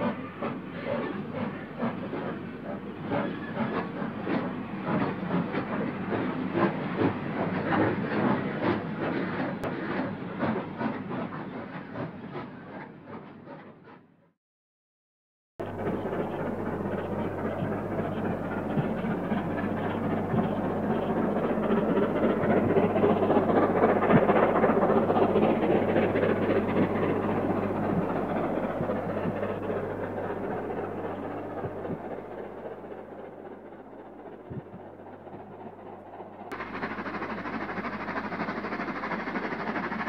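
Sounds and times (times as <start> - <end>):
steam locomotives passing: 0.0 - 14.1, 15.6 - 40.0
steady low hum: 15.6 - 40.0.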